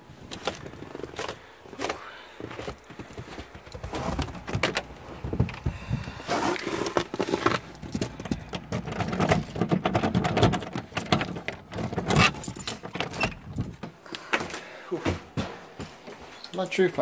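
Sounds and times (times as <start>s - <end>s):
keys jangling: 7.5s - 13.8s.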